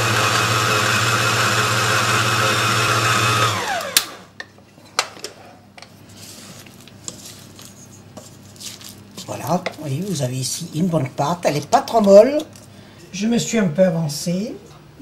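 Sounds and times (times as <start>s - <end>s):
stand mixer running: 0.0s - 4.2s.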